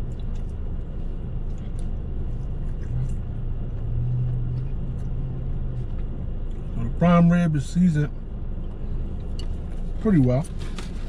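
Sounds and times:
car cabin rumble: 0:00.0 - 0:11.0
low hum: 0:00.0 - 0:11.0.

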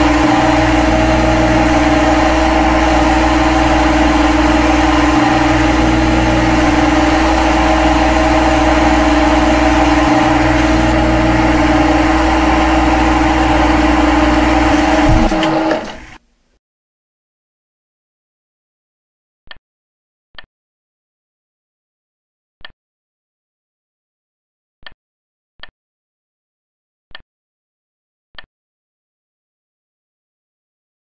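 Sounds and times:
lathe machine hum and hiss: 0:00.0 - 0:16.2.

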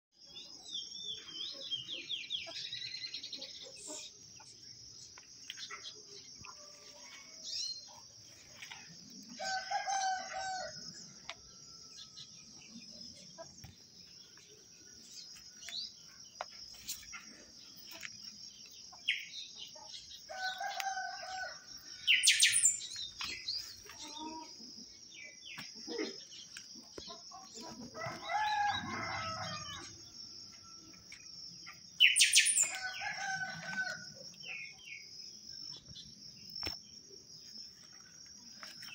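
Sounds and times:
birds chirping and calling: 0:00.4 - 0:36.8
rooster crowing: 0:09.3 - 0:12.2, 0:20.3 - 0:22.7, 0:27.9 - 0:30.0, 0:32.2 - 0:34.2.

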